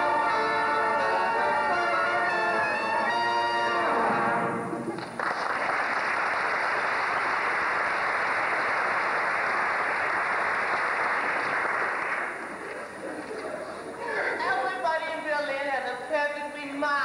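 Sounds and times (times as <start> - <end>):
song closing music: 0.0 - 5.0
audience applause: 3.9 - 13.6.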